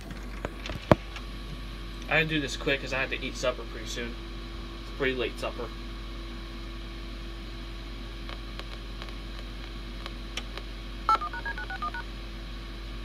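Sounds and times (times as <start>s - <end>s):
tape playback hum: 0.0s - 13.0s
touch-tone dialing beeps: 11.1s - 12.0s.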